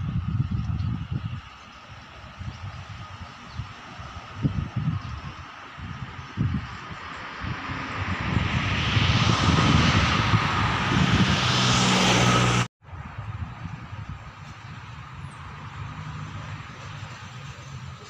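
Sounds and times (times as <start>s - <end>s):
engine drone: 0.0s - 12.7s.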